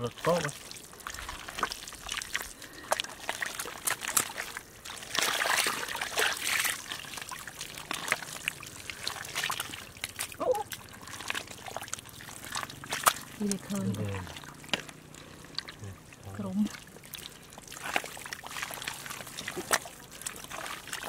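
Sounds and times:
wet mud squelching and sloshing: 0.0s - 21.0s
small wet clicks: 0.2s - 21.0s.

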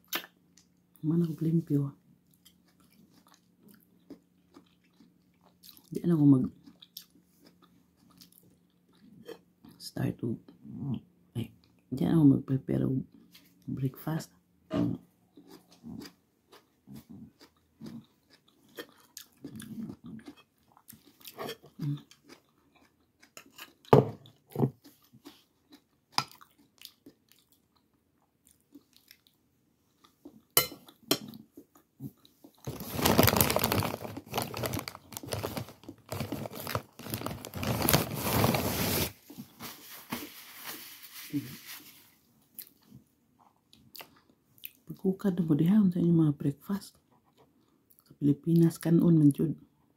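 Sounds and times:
person chewing food: 2.2s - 9.8s, 15.3s - 38.4s, 42.4s - 44.8s, 47.1s - 48.1s
loud crackling rustle: 32.7s - 42.0s.

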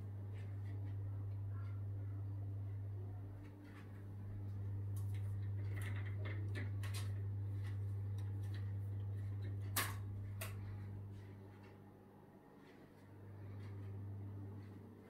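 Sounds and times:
steady low hum: 0.0s - 15.0s
blind slats clattering and clicking: 4.9s - 10.7s.

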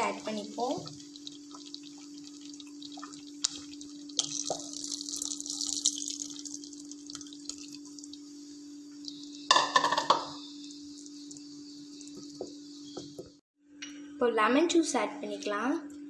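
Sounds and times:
liquid pouring and splashing into pot: 0.0s - 12.6s.

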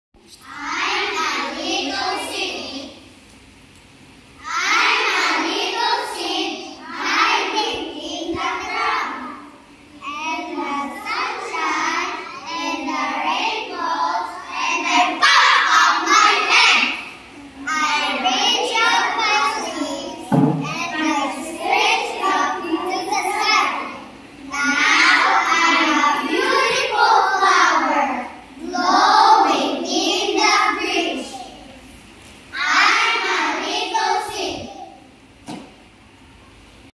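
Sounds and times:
children reciting in unison: 0.3s - 3.0s, 4.4s - 31.8s, 32.5s - 35.1s
children singing in unison: 24.6s - 31.2s.

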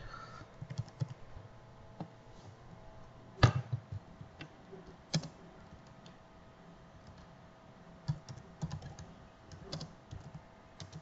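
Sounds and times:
keyboard keys clicking: 0.6s - 1.2s, 5.1s - 6.2s, 8.1s - 11.0s.

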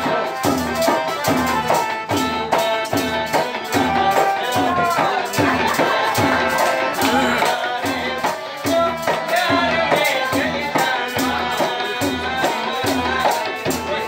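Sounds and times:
tabla dance rhythm: 0.0s - 14.0s
wavering melody: 5.8s - 7.8s.

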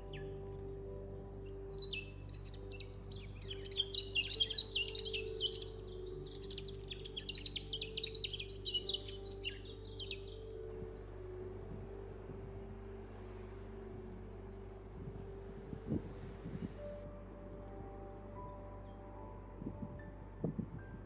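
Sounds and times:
small birds chirping and trilling: 0.0s - 11.0s
low synth drone music: 0.0s - 21.0s.

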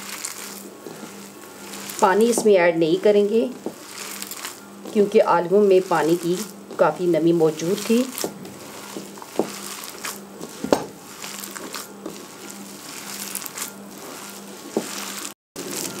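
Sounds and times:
hands squishing potato mixture: 0.0s - 16.0s.

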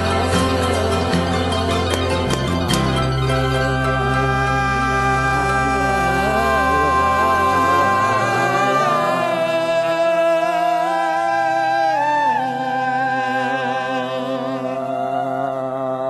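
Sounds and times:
slow sustained chord music: 0.0s - 11.1s.

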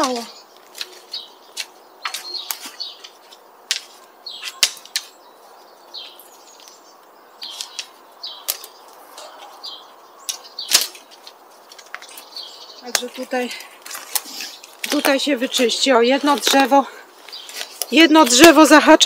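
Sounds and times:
twigs snapping: 0.0s - 5.4s, 6.0s - 18.7s
brush rustling: 0.0s - 19.0s.

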